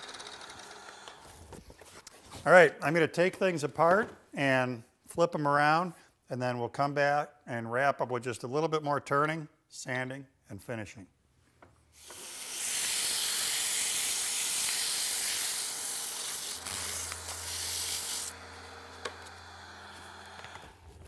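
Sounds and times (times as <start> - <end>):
wood lathe running: 0.0 - 1.3, 12.0 - 20.8
sandpaper hissing on spinning wood: 12.0 - 18.4.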